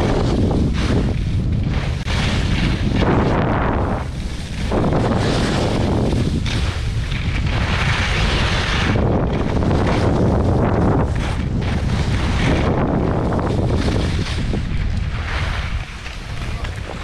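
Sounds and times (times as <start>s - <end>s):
wind rumble on microphone: 0.0s - 17.0s
skis hissing on packed snow: 3.2s - 6.9s, 7.5s - 9.0s.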